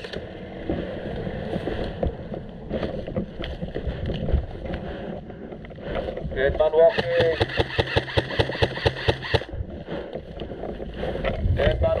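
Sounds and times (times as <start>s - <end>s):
wind buffeting microphone: 0.2s - 6.9s, 9.4s - 12.0s.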